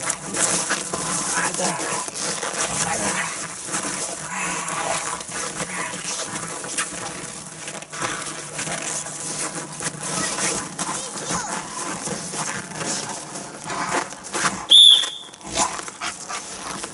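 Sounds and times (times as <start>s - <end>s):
dog growling: 0.2s - 6.4s, 15.4s - 16.8s.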